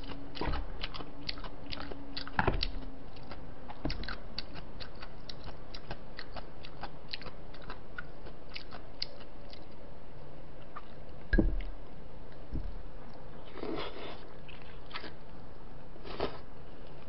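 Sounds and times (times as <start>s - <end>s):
chewing: 0.0s - 9.9s, 10.6s - 11.2s, 13.0s - 15.3s
dull thump: 11.3s - 11.7s, 12.5s - 12.8s.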